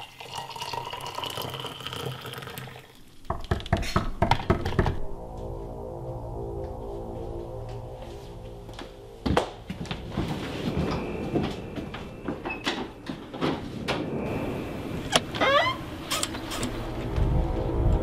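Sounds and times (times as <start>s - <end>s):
footsteps: 4.9s - 14.3s
door squeaking open: 15.1s - 16.8s.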